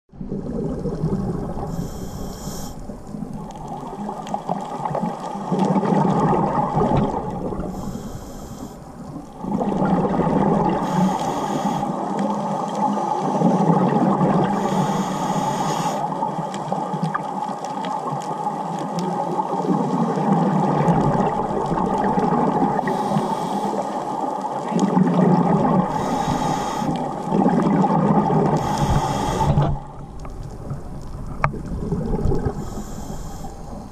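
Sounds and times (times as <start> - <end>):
muffled water rumble: 0.1 - 33.9
diver exhaling bubbles: 0.2 - 8.1, 9.3 - 12.0, 13.0 - 16.2, 19.6 - 23.8, 24.6 - 33.9
regulator hiss: 1.7 - 2.9, 7.7 - 9.0, 10.8 - 13.4, 14.5 - 16.1, 22.8 - 24.2, 25.9 - 27.1, 28.6 - 29.8, 32.6 - 33.9.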